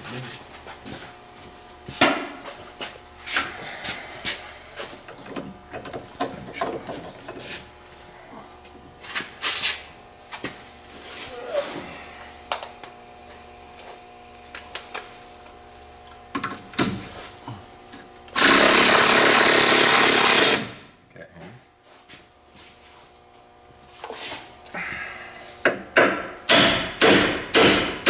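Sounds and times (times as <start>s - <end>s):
pneumatic tool running: 18.3s - 20.8s.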